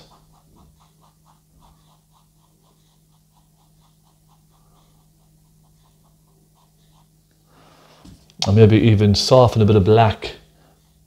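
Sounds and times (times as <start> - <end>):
paintbrush scratching on canvas: 0.0 - 7.3.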